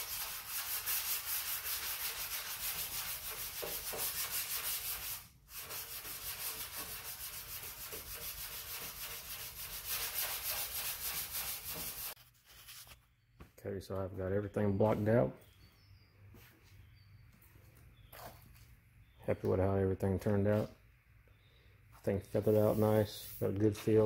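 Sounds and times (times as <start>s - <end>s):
hand sanding rubbing strokes: 0.0s - 13.0s, 22.3s - 24.0s.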